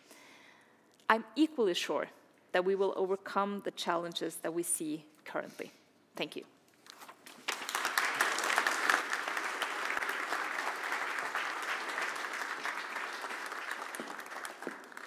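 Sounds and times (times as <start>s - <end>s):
audience applauding: 7.3s - 15.0s.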